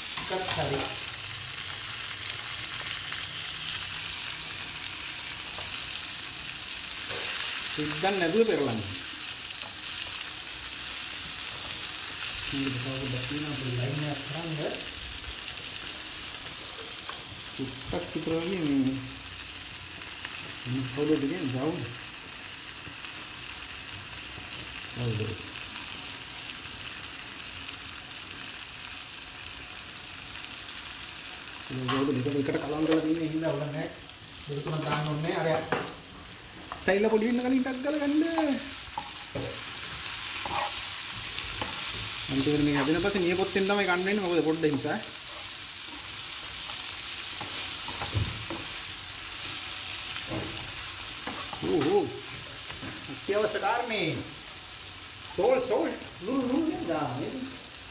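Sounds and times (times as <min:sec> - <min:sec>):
vegetables sizzling in a pan: 0:00.0 - 0:57.9
spatula scraping and knocking pan: 0:38.4 - 0:43.0.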